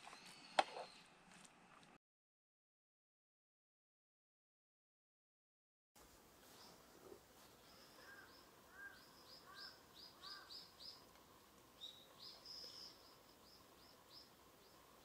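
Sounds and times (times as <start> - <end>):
faint bird chirps: 0.0 - 1.1, 6.5 - 11.1, 11.8 - 15.0.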